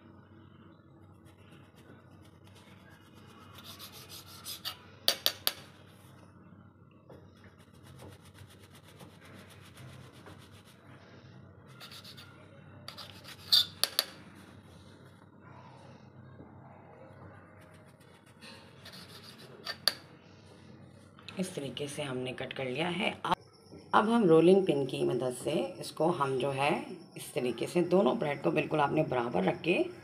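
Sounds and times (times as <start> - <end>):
knife sawing through bread: 3.5 - 4.8, 11.8 - 12.3, 12.9 - 13.8, 18.9 - 19.8
blade tapping marble slab: 12.9 - 14.2.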